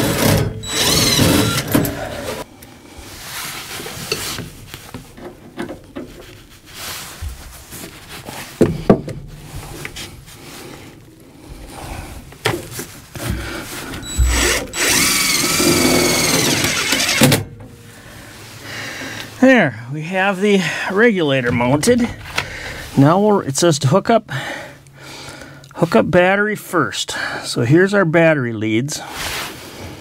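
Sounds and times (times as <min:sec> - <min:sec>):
cordless drill motor whine: 0:00.6 - 0:02.4, 0:14.0 - 0:17.4.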